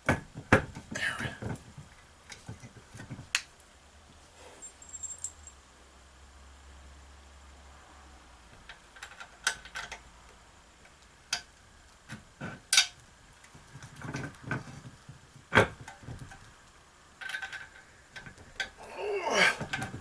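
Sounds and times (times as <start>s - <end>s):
metal clinks and taps: 4.6s - 5.6s.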